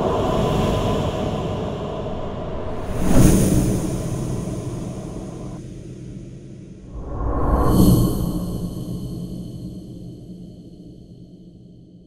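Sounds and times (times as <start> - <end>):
long whoosh: 6.8 - 9.9.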